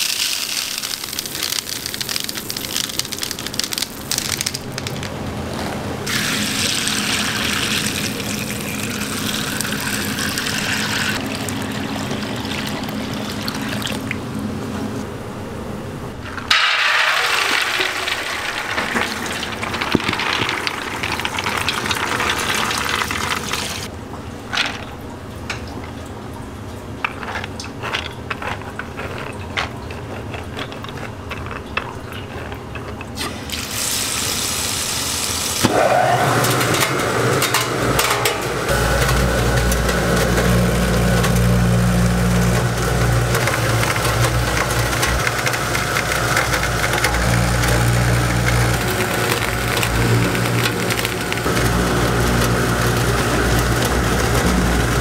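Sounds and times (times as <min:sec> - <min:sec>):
liquid pouring into a pot: 0:00.0 - 0:04.9, 0:06.0 - 0:14.2, 0:16.5 - 0:23.9
beans rattling into a steel bin: 0:00.0 - 0:05.7, 0:16.4 - 0:23.8, 0:43.4 - 0:54.7
grinder motor humming: 0:35.7 - 0:55.0.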